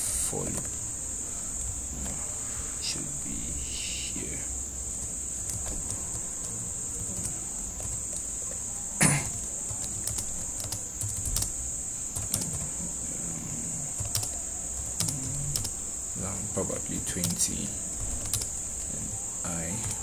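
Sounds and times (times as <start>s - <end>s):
steady high-pitched whine: 0.0s - 20.0s
keyboard typing: 4.9s - 8.6s, 9.4s - 12.8s, 13.9s - 15.8s, 17.1s - 18.6s, 19.6s - 20.0s.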